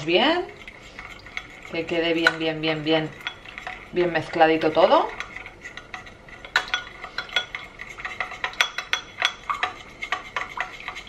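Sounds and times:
spoon clinking against glass bowl: 3.1 - 3.8, 5.1 - 10.8.

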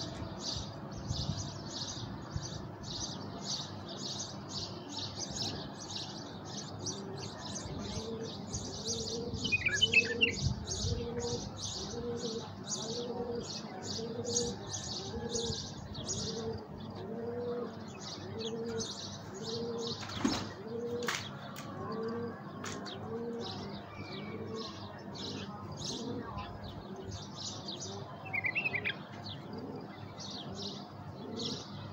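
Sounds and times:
small birds chirping: 0.0 - 31.9
dove cooing: 6.9 - 21.2, 21.8 - 27.4, 28.0 - 31.9.

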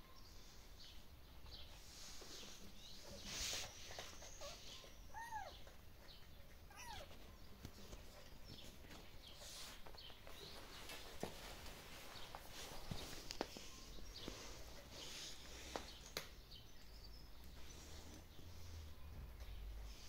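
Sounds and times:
kittens mewing: 4.4 - 5.8, 6.5 - 7.2.

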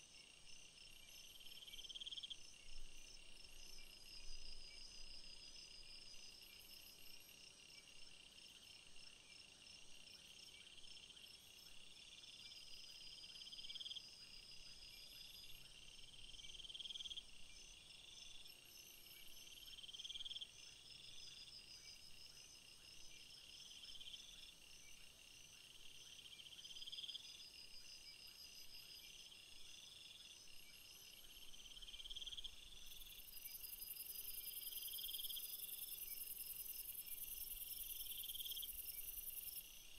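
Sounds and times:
insects trilling: 26.2 - 39.9
loud pulsing insect trill: 26.3 - 39.9.

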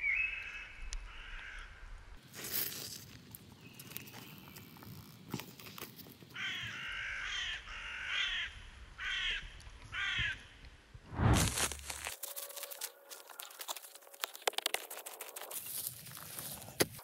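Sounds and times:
crow cawing: 0.5 - 1.8, 6.4 - 10.4
twig fire crackling: 11.1 - 17.0.

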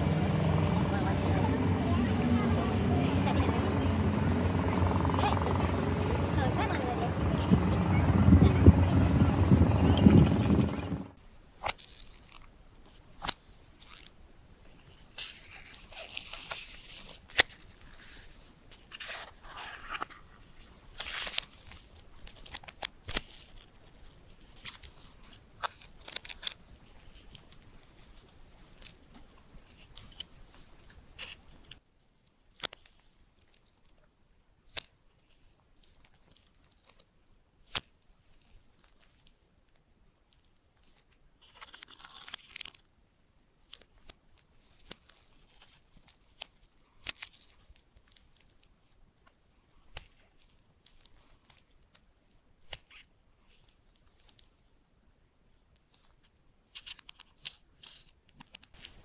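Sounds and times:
packaging tearing and peeling: 11.6 - 12.5, 40.8 - 42.8.

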